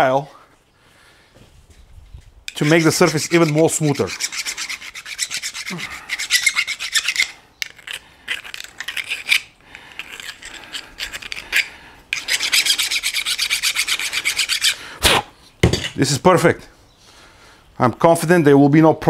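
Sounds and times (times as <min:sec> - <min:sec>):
hand file rasping on metal pipe: 0:02.5 - 0:14.8.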